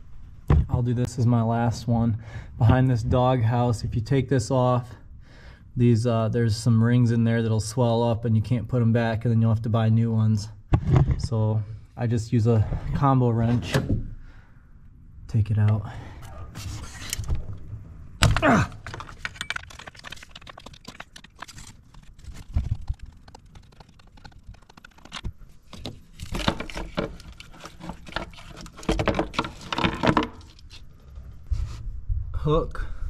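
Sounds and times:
metal scraping and knocking: 22.3 - 30.8.

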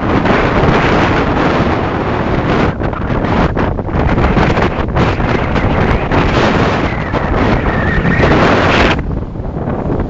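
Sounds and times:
wind buffeting microphone: 0.0 - 10.0
breaking surf: 0.1 - 10.0
low rumble: 3.7 - 10.0.

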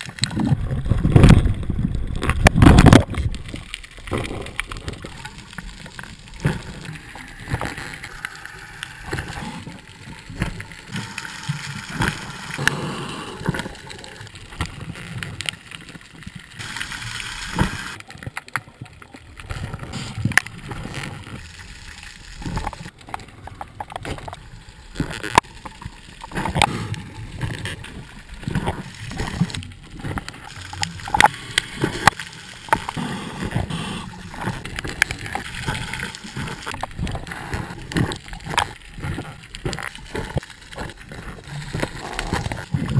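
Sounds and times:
underwater bubbles gurgling: 0.0 - 42.9.

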